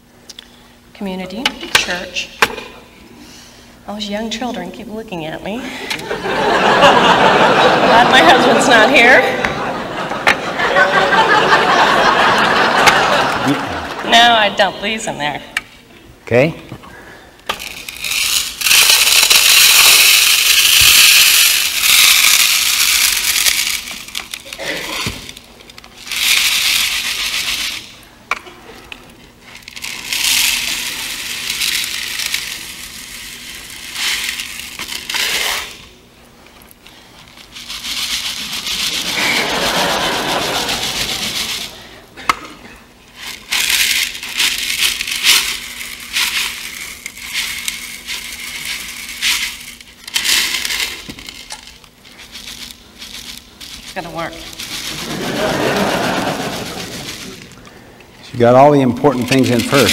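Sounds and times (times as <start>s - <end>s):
pebbles pouring into plastic bucket: 17.6s - 27.9s, 29.6s - 35.8s, 37.4s - 41.8s, 43.2s - 57.6s, 58.5s - 59.9s.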